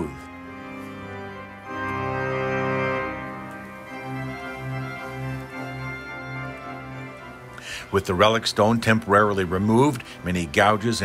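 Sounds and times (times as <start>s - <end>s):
organ chords: 0.0s - 11.0s.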